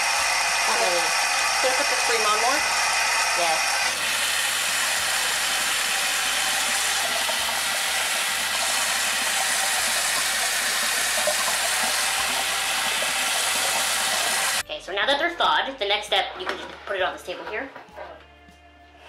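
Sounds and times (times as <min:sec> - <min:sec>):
tap water running into metal basket: 0:04.0 - 0:14.6.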